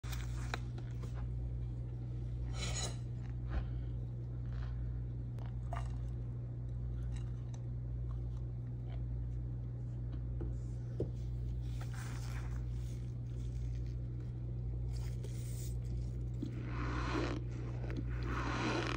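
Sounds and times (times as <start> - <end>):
steady low hum: 0.0 - 18.9
plastic spoon scraping powder: 14.9 - 18.9.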